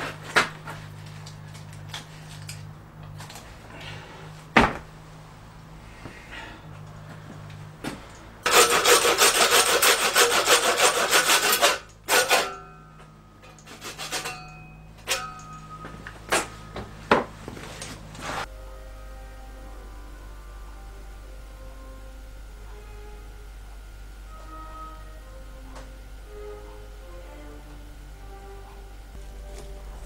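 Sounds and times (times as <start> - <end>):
tool rasping on carcass: 8.4 - 12.6, 13.6 - 14.5
scrapes with metallic ring: 11.6 - 16.8
faint music: 11.9 - 30.0.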